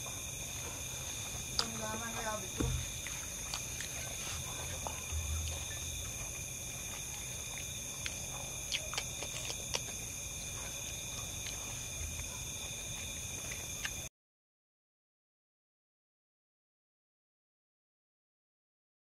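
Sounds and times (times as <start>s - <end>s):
crickets chirping: 0.0s - 14.1s.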